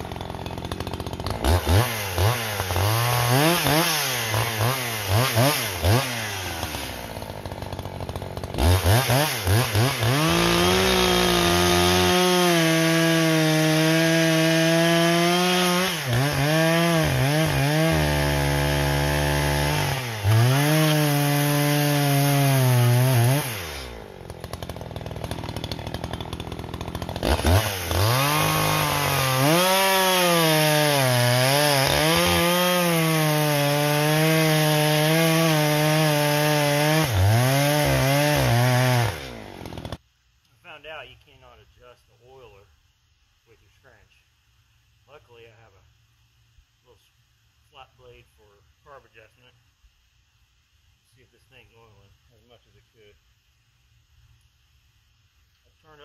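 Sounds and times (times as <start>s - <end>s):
chainsaw cutting logs: 0.0s - 40.0s.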